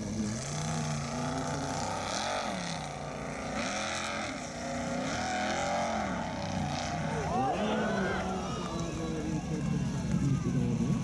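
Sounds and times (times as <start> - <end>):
buggy engine revving hard: 0.0 - 9.2.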